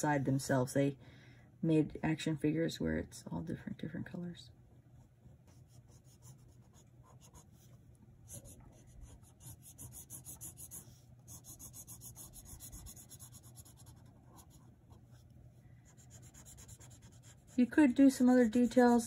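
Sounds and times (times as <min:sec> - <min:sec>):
marker scribbling on paper: 0:08.3 - 0:15.2, 0:15.9 - 0:19.0.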